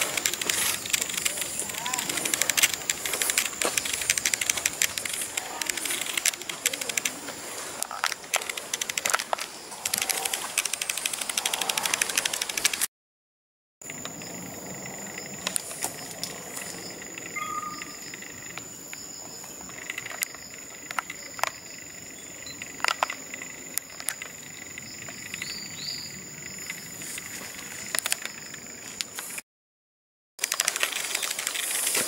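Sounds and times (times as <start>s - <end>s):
insect trilling: 0.0s - 12.8s, 13.8s - 28.9s
sharp clicks: 0.0s - 12.9s
short rising chirps: 17.3s - 18.1s.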